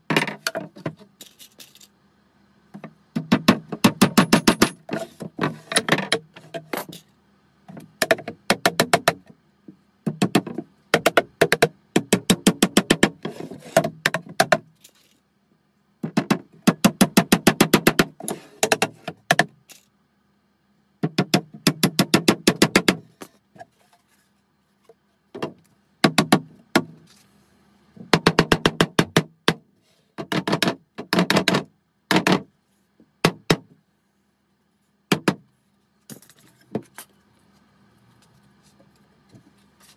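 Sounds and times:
hammer tapping on wooden box: 7.8 - 9.3, 10.1 - 13.2, 13.8 - 14.7, 21.0 - 23.0, 28.1 - 29.6.

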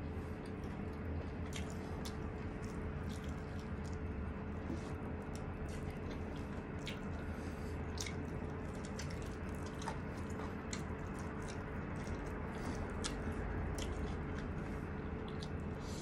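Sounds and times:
steady low hum: 0.0 - 16.0
person biting and chewing: 4.9 - 14.6.

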